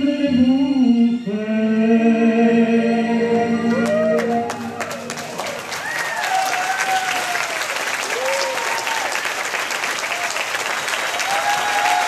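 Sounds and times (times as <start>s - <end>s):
voices whooping and calling out: 3.7s - 9.1s, 11.2s - 12.0s
audience applauding: 3.8s - 12.0s.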